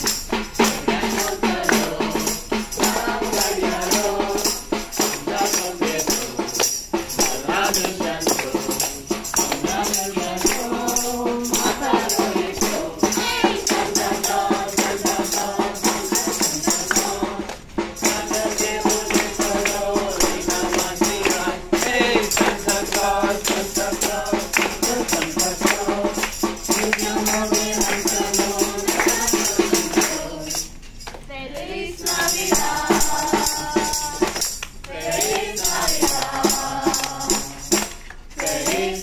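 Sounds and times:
clapped beat: 0.0s - 39.0s
group singing a carol: 0.0s - 39.0s
percussion: 0.0s - 39.0s.

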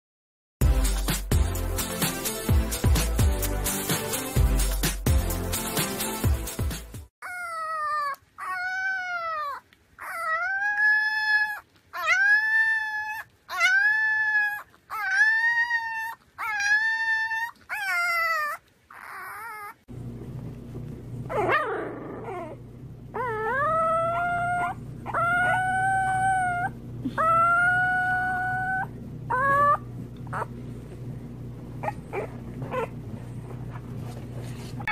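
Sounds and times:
puppies howling: 7.2s - 19.9s, 21.3s - 30.6s
low steady hum: 8.1s - 34.9s.

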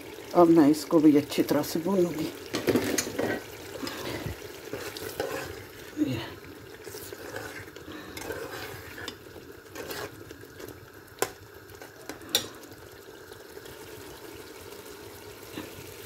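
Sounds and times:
frying hiss: 0.0s - 16.0s
spoon stirring in a pan: 2.1s - 13.8s.

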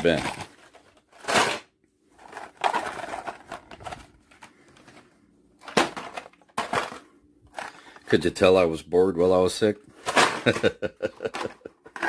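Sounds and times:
toy cars clattering: 0.0s - 4.5s, 5.6s - 8.1s, 10.0s - 12.0s.

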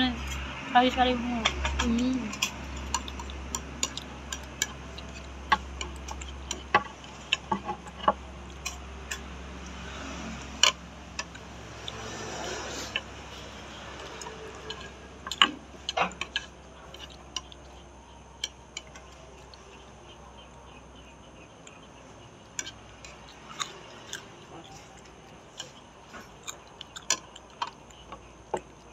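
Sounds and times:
chopsticks clicking: 1.4s - 9.8s, 22.6s - 28.7s
person chewing: 2.2s - 28.9s.

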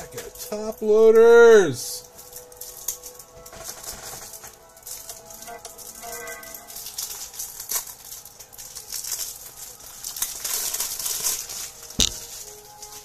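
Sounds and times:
plastic packaging crinkling and tearing: 2.0s - 13.0s
sharp knock: 12.0s - 12.2s.

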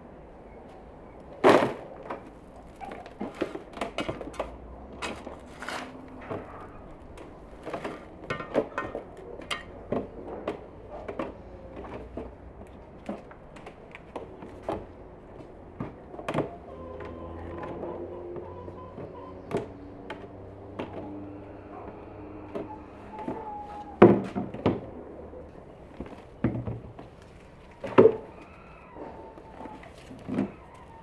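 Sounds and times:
trowel scraping soil: 5.4s - 6.2s.

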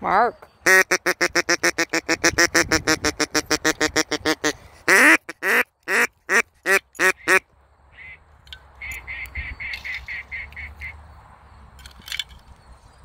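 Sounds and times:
duck call quacks: 0.6s - 7.4s.

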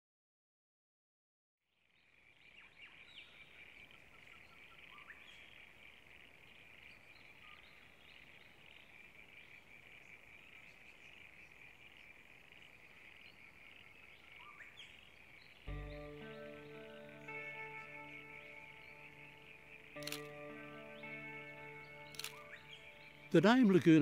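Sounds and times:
short bird chirps: 15.4s - 23.4s.

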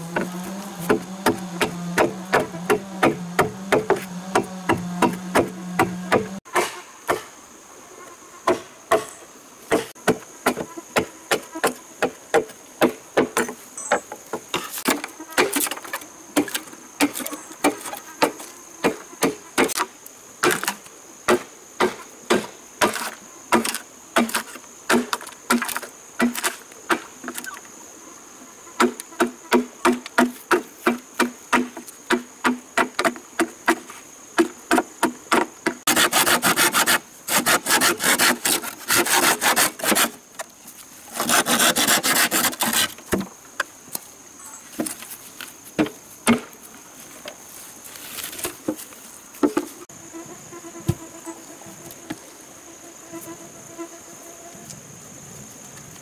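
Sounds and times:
insects buzzing: 0.0s - 56.0s
knife chopping bamboo: 0.1s - 7.3s, 16.4s - 27.5s, 28.8s - 40.2s.

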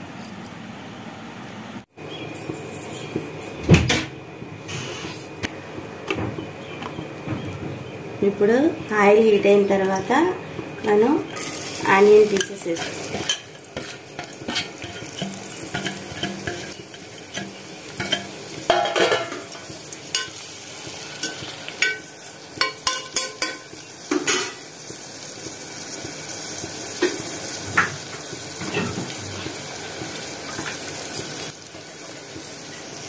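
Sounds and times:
onions sizzling in hot oil: 7.8s - 33.0s
metal spoon scraping a pot: 12.4s - 19.5s.

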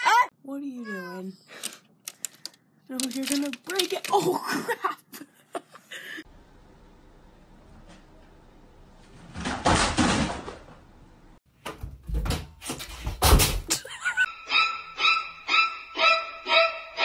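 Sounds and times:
closet door slamming: 11.6s - 13.8s.

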